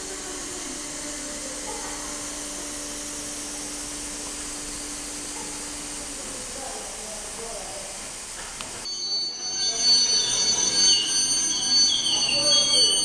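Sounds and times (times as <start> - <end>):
constant low hum: 0.0 - 7.6.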